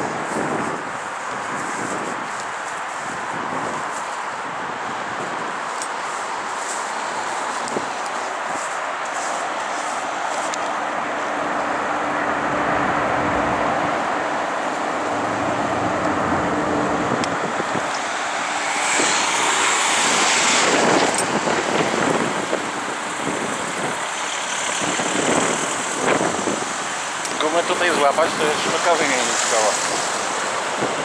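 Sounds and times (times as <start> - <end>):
road traffic noise: 0.0 - 31.0.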